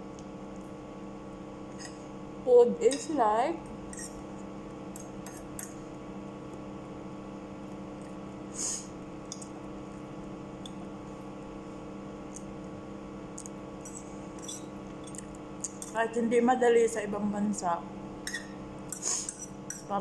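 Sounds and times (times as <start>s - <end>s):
steady background hum: 0.0s - 20.0s
fork scraping on plate: 3.9s - 4.2s, 13.8s - 14.7s, 18.3s - 19.8s.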